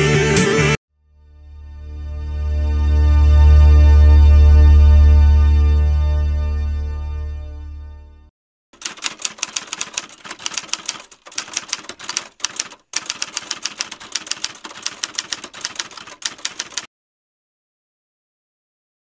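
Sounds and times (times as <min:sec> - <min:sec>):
typewriter keys clacking: 0:08.8 - 0:16.9.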